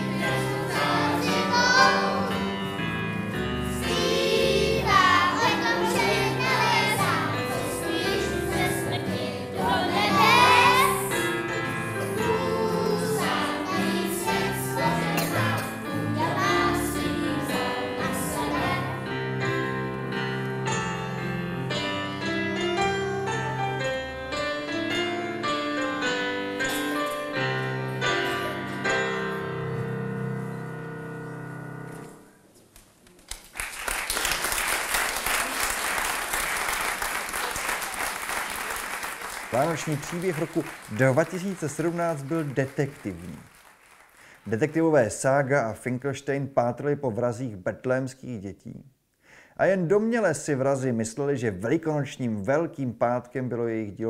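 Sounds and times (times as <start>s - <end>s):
children's choir singing: 0.0s - 2.9s, 3.5s - 19.8s
electric keyboard: 0.0s - 32.4s
audience applauding: 33.2s - 45.1s.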